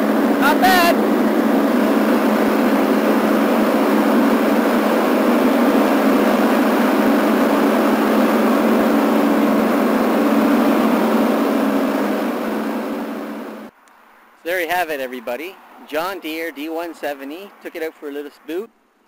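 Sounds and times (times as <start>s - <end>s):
lawn tractor engine mowing: 0.0s - 13.7s.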